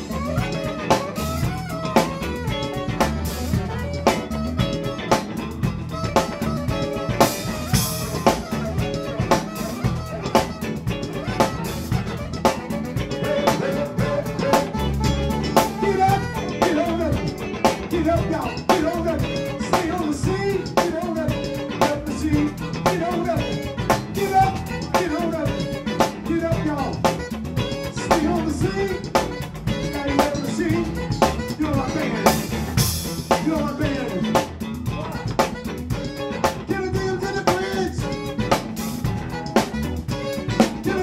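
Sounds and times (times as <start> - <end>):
drum kit beat: 0.0 - 41.0
electric bass: 0.0 - 41.0
electric guitar: 0.0 - 41.0.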